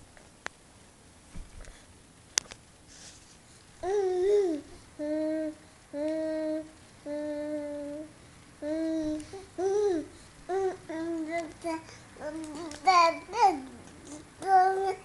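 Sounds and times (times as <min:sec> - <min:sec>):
baby vocalising: 0:03.8 - 0:15.0.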